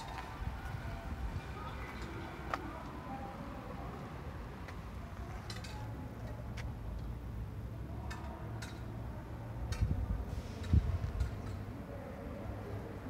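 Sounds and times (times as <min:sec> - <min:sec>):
footsteps on icy gritty sidewalk: 0:00.0 - 0:05.5.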